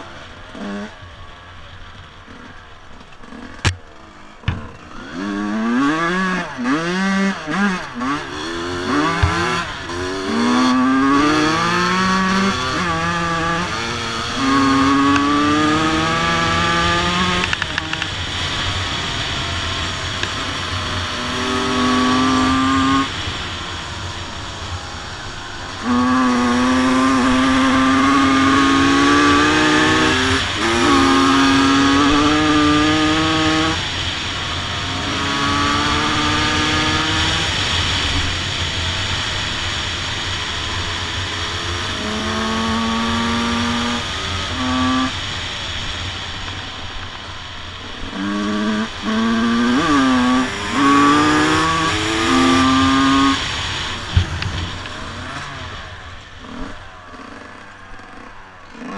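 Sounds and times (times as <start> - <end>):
motocross bike engine revving: 0.0 - 58.9.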